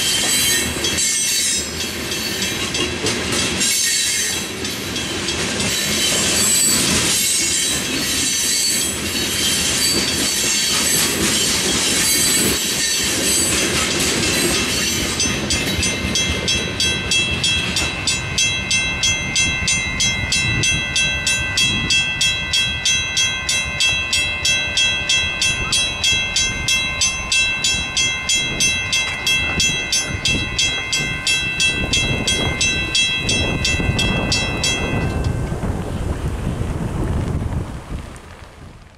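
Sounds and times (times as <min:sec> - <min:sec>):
train wheel clatter: 0:00.0 - 0:38.3
mechanical crossing bell ringing: 0:14.3 - 0:35.6
electronic crossing bell ringing: 0:14.4 - 0:35.6.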